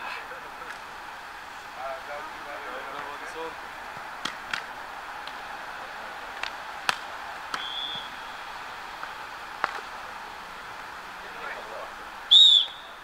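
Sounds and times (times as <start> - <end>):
outdoor background noise: 0.0 - 13.0
volleyball being struck by hands: 4.2 - 5.4, 6.4 - 8.1
high whistle: 7.6 - 8.4, 12.3 - 13.0.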